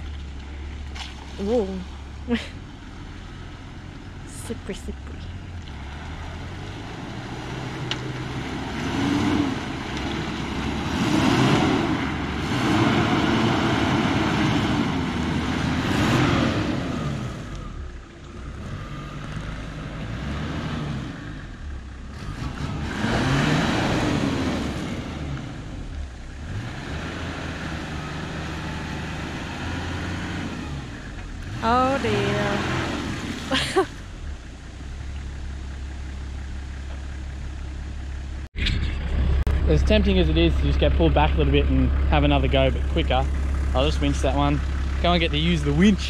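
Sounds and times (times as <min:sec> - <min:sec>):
truck engine revving hard: 0:05.7 - 0:17.8, 0:18.5 - 0:21.4, 0:22.1 - 0:25.8, 0:26.4 - 0:34.0, 0:38.8 - 0:46.0.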